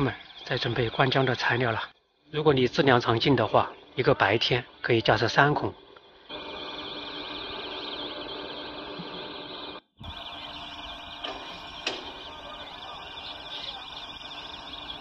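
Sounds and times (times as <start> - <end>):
high warbling drone: 10.0 - 15.0.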